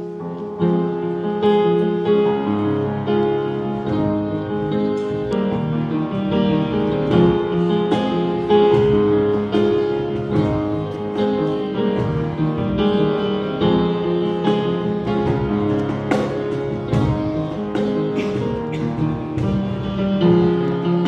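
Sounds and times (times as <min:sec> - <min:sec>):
slow piano chords: 0:00.0 - 0:21.0.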